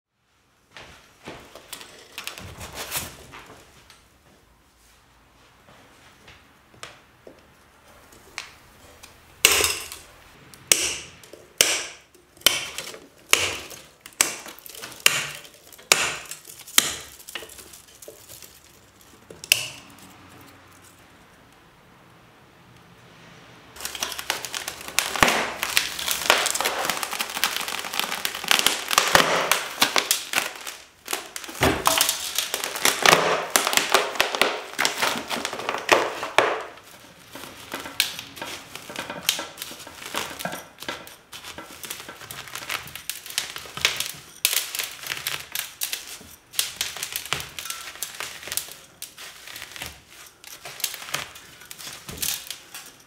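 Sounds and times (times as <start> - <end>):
polystyrene foam crackling: 8.1 - 20.3, 23.8 - 53.0
branch cutter snipping twigs: 8.4 - 20.6.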